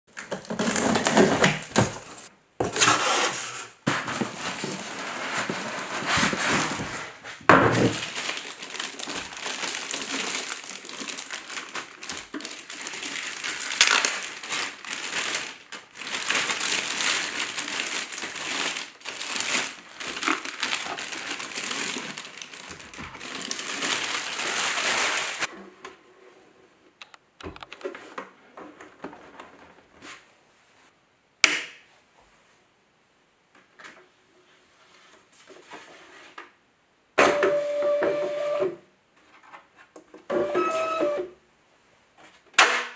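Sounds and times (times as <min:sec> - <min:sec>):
cardboard and plastic bag crinkling: 0:00.1 - 0:03.2, 0:03.9 - 0:25.5.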